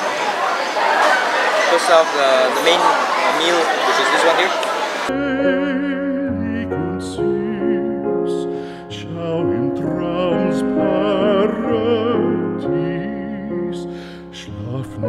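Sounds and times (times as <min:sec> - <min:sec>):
sung melody with vibrato: 0:05.1 - 0:15.0.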